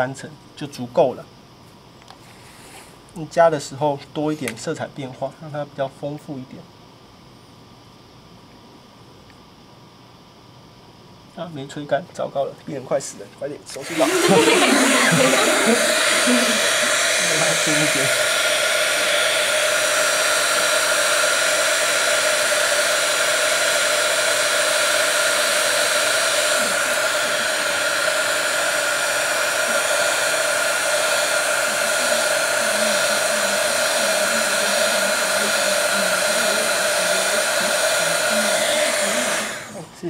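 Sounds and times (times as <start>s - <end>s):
blow dryer running: 13.7s - 40.0s.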